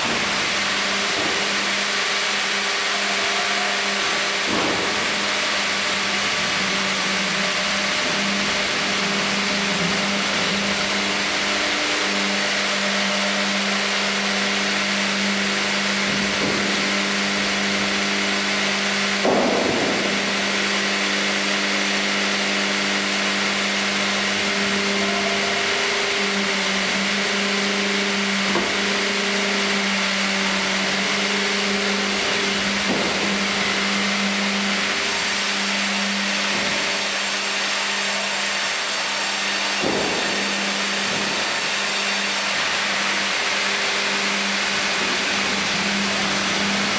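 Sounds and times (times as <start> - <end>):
heavy knocks of log loading: 0.0 - 2.9, 4.1 - 10.6, 16.0 - 17.7, 19.2 - 20.6, 28.2 - 29.4, 30.6 - 35.4, 36.0 - 46.9
high machine whining: 0.0 - 46.9
sawmill machine hum: 0.0 - 46.9.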